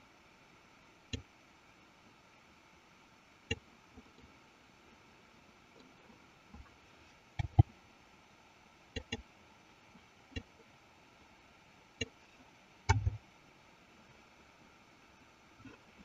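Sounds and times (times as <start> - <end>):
mouse and keyboard clicking: 9.0 - 9.2.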